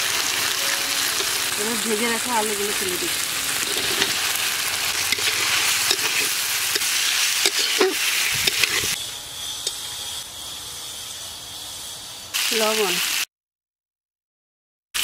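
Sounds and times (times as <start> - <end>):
potatoes sizzling in hot oil: 0.0 - 13.3
metal spatula scraping a pan: 2.0 - 12.6.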